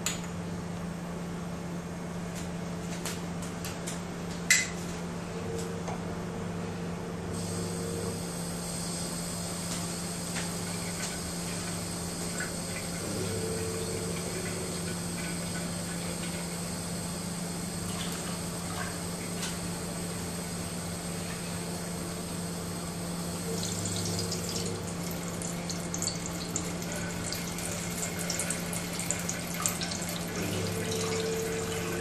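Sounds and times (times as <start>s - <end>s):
tap water running into sink: 23.5s - 32.0s.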